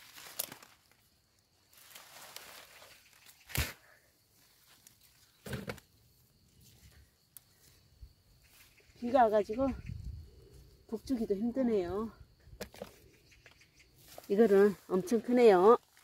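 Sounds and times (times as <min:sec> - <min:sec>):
sharp plastic crackles: 0:00.0 - 0:01.0
hand rustling leaves and soil: 0:00.0 - 0:13.1, 0:13.8 - 0:16.0.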